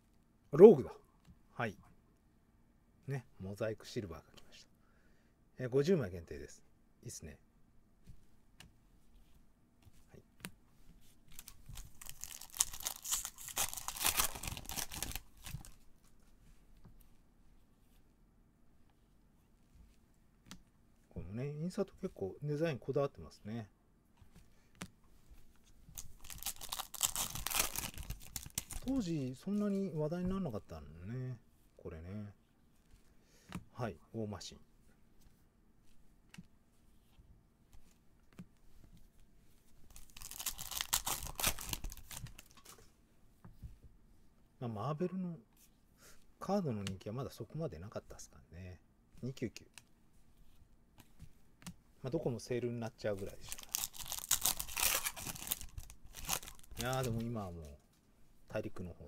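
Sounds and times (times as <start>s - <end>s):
foil wrapper tearing and crinkling: 11.3s - 15.7s, 26.0s - 29.1s, 39.9s - 42.6s, 53.4s - 57.2s
faint clicks of cards handled: 35.2s - 40.0s, 41.6s - 44.0s, 46.8s - 47.0s, 49.2s - 51.8s.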